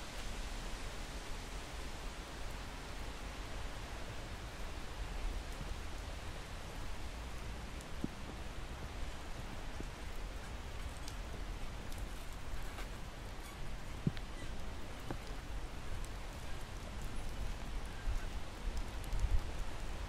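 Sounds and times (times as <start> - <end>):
faint ticks: 9.8 - 20.0.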